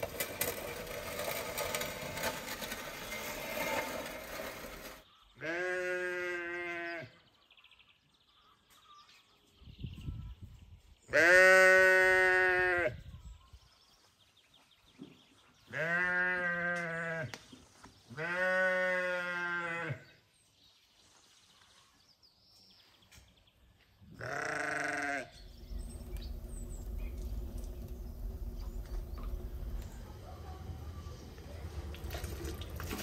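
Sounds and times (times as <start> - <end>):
sheep bleating: 5.4 - 7.1, 11.1 - 13.0, 15.7 - 17.2, 18.2 - 20.0, 24.2 - 25.4
wood fire crackling: 25.4 - 33.0.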